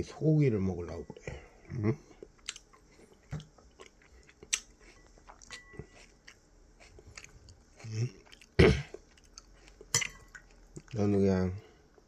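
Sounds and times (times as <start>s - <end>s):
person chewing: 2.0s - 11.0s.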